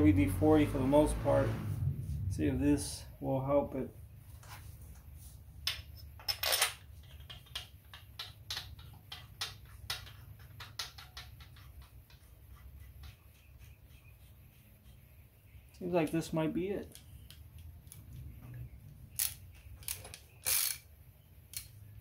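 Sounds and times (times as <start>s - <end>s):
steady low hum: 0.0s - 5.5s
small metallic clicks and taps: 7.0s - 12.2s.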